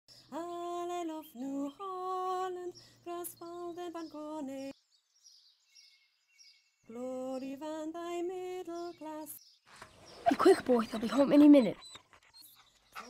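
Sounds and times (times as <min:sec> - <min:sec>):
girl singing slow song: 0:00.2 - 0:04.8, 0:06.9 - 0:09.4.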